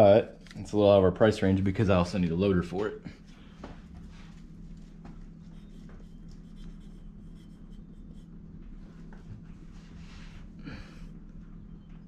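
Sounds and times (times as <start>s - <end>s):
steady low hum: 0.0s - 12.0s
marker scratching on metal: 5.4s - 8.4s.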